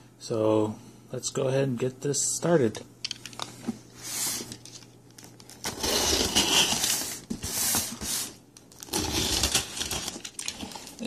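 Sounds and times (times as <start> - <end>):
cardboard crinkling: 4.3 - 11.0
packing tape tearing off box: 4.3 - 11.0.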